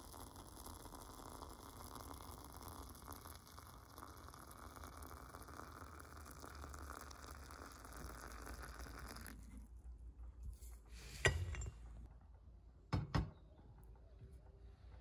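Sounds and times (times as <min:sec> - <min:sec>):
water pouring onto dried herbs: 0:00.0 - 0:09.5.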